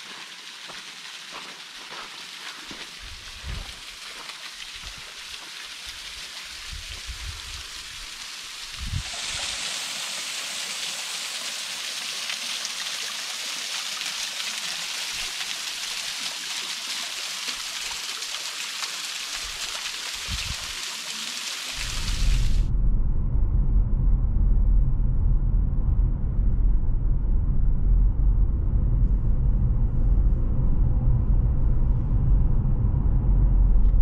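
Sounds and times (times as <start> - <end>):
waterfall trickling and splashing: 0.0 - 22.7.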